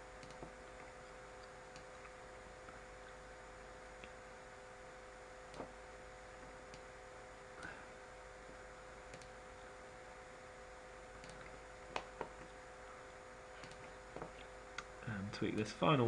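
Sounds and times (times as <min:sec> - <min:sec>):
electrical hum: 0:00.0 - 0:16.0
room hiss: 0:00.0 - 0:16.0
computer mouse clicks: 0:00.2 - 0:00.6, 0:01.4 - 0:02.1, 0:09.1 - 0:09.4, 0:11.2 - 0:12.5, 0:13.6 - 0:14.9.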